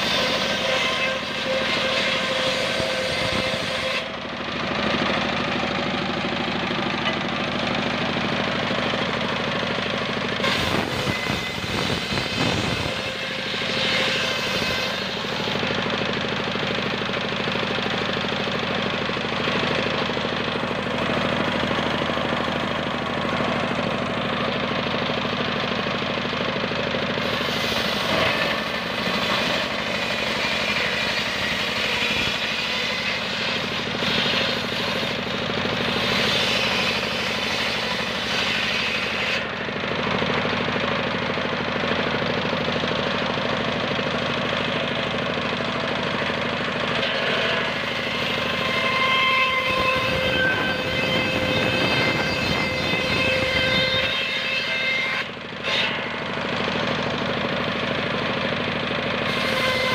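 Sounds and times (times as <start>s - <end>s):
circular saw cutting wood: 0.0s - 59.9s
diesel engine knocking: 4.2s - 10.4s, 15.6s - 30.0s, 39.6s - 47.0s, 56.2s - 59.3s.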